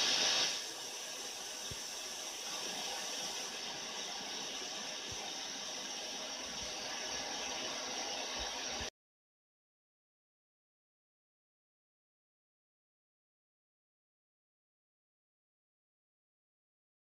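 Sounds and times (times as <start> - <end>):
static hiss: 0.0 - 8.9.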